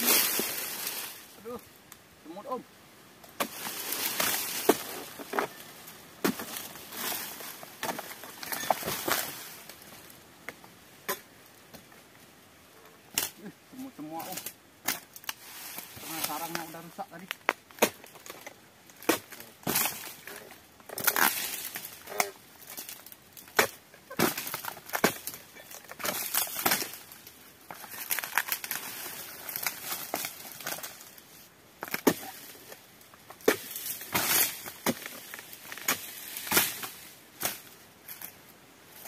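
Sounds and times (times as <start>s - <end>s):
palm fronds rustling: 0.0s - 39.0s
blade chopping palm trunk: 6.2s - 6.7s, 17.5s - 18.4s, 19.0s - 20.1s, 20.9s - 25.4s, 26.0s - 27.0s, 31.8s - 32.4s, 33.4s - 37.7s.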